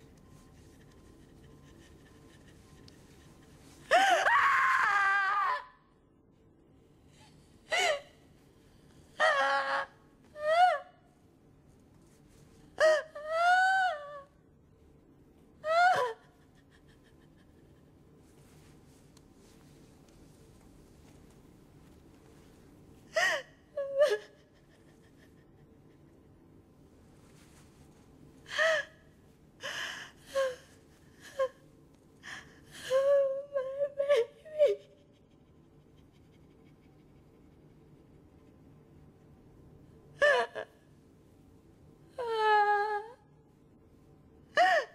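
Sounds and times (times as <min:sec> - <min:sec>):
woman gasping and sobbing: 0:03.8 - 0:05.2, 0:23.1 - 0:26.0, 0:44.5 - 0:44.9
woman screaming: 0:03.9 - 0:05.8
woman's anguished cry: 0:03.9 - 0:05.8.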